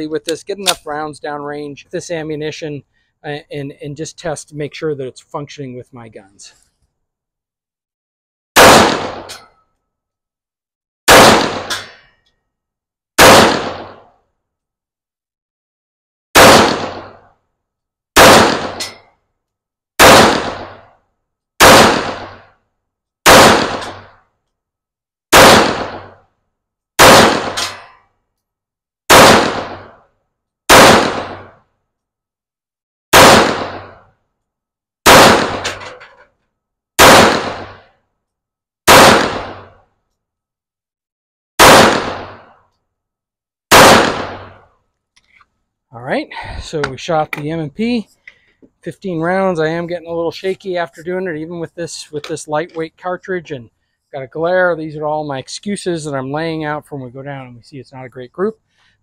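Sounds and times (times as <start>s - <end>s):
pistol shots: 8.6s - 9.4s, 11.1s - 11.9s, 13.2s - 14.0s, 16.4s - 17.2s, 18.2s - 19.0s, 20.0s - 20.8s, 21.6s - 22.4s, 23.3s - 24.1s, 25.3s - 26.2s, 27.0s - 27.9s, 29.1s - 30.0s, 30.7s - 31.6s, 33.1s - 34.0s, 35.0s - 35.8s, 37.0s - 37.8s, 38.9s - 39.8s, 41.6s - 42.5s, 43.7s - 44.7s.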